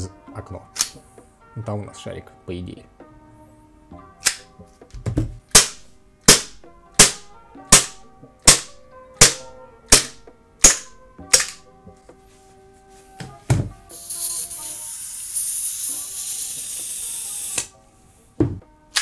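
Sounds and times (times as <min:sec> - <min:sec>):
airsoft pistol shots: 0:05.5 - 0:11.6.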